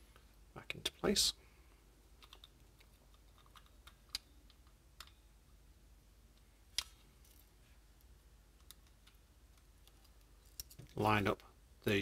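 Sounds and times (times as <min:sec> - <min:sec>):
small sharp clicks and taps: 0:08.0 - 0:10.9.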